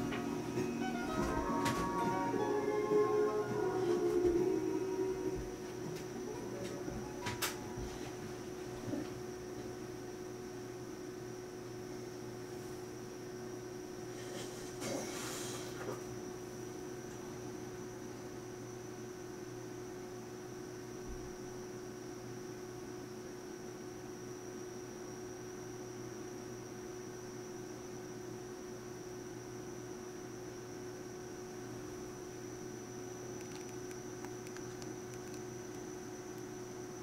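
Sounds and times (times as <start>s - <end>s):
electrical hum with high whine: 0.0s - 37.0s
hiss: 14.1s - 16.0s.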